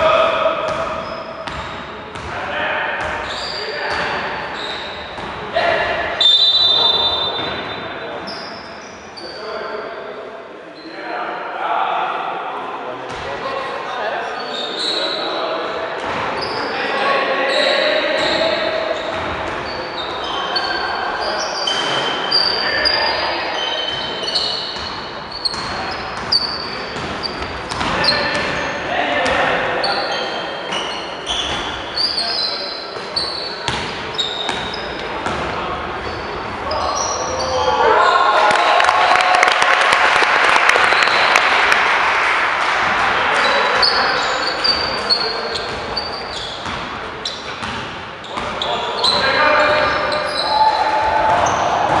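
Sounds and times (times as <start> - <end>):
basketball bouncing: 0.7 - 2.3, 27.0 - 28.6, 33.7 - 35.6, 46.6 - 48.5
shoes squeaking on court: 0.7 - 2.3, 3.0 - 5.4, 6.2 - 9.4, 16.0 - 16.8, 17.5 - 38.2, 43.4 - 50.6, 51.3 - 52.0.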